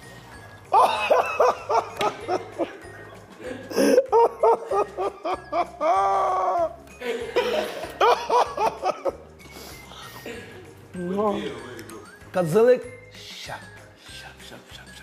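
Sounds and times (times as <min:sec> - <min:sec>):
background music with steady beat: 0:00.0 - 0:15.0
man laughing: 0:00.8 - 0:02.8, 0:03.4 - 0:09.2.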